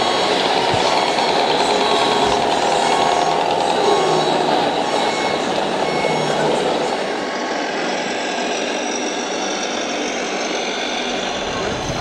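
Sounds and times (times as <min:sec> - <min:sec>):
diesel truck engine running: 0:00.0 - 0:07.3, 0:11.0 - 0:12.0.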